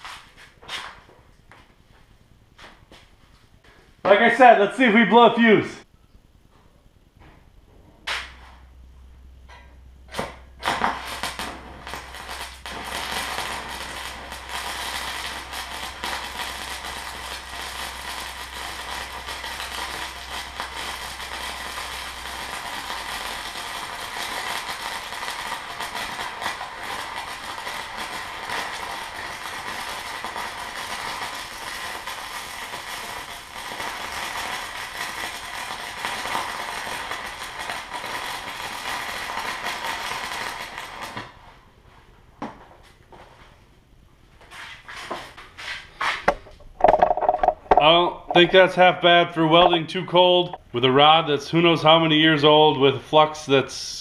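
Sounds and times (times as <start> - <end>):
welding rod strikes: 8.0 - 8.6, 9.5 - 34.3
welding arc crackling: 9.6 - 41.6, 45.3 - 52.4.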